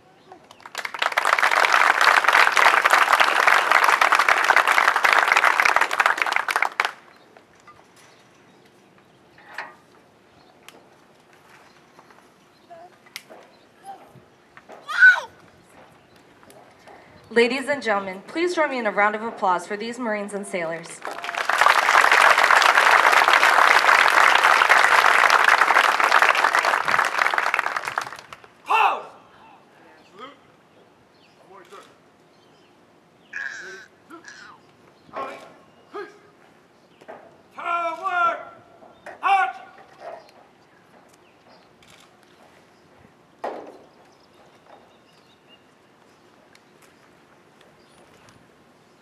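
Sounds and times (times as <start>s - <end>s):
audience applauding: 0.5s - 7.2s, 20.9s - 28.5s.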